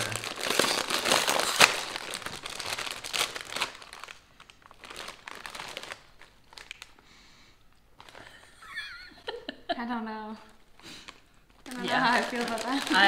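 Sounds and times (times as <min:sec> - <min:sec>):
plastic chip bag crinkling: 0:00.0 - 0:07.0, 0:07.9 - 0:08.5, 0:10.8 - 0:13.0.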